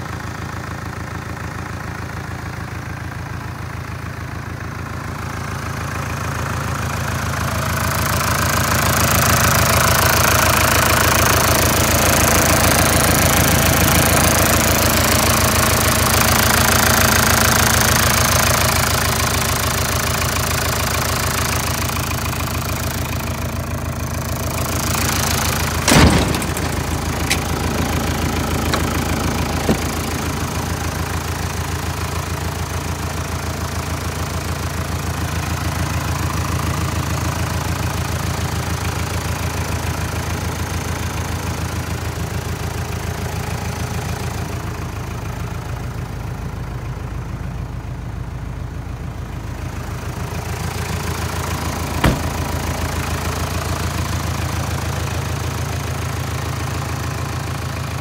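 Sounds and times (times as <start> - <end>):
truck engine idling: 0.0 - 58.0
cab door clunk: 25.8 - 30.6, 52.0 - 52.7.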